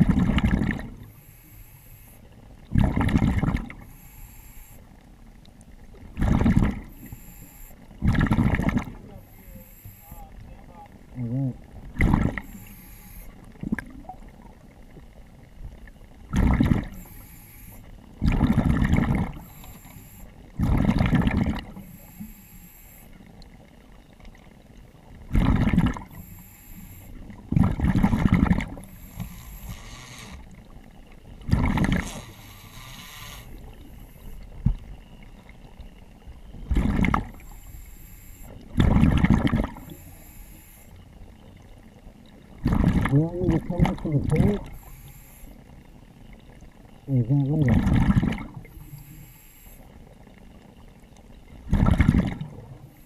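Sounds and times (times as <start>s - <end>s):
gurgling exhaled bubbles: 0.0s - 1.2s, 2.6s - 3.9s, 6.0s - 7.2s, 8.0s - 9.7s, 10.3s - 17.2s, 18.1s - 21.9s, 25.1s - 26.3s, 27.1s - 34.9s, 36.6s - 37.5s, 38.6s - 40.0s, 41.6s - 45.0s, 46.9s - 49.2s, 51.5s - 53.0s
regulator hiss on inhale: 1.0s - 2.3s, 3.8s - 4.9s, 6.9s - 7.8s, 9.2s - 10.2s, 12.4s - 13.4s, 16.9s - 17.9s, 19.4s - 20.3s, 21.8s - 23.2s, 26.1s - 27.2s, 28.8s - 30.5s, 32.0s - 34.4s, 37.4s - 38.6s, 39.8s - 41.0s, 44.7s - 45.7s, 48.7s - 50.0s.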